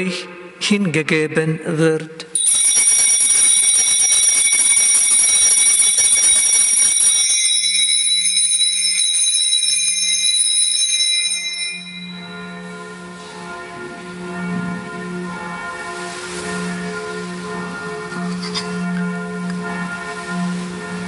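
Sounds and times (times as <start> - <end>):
altar bells jangling: 2.4 - 13.0
deep steady tone: 10.9 - 21.0.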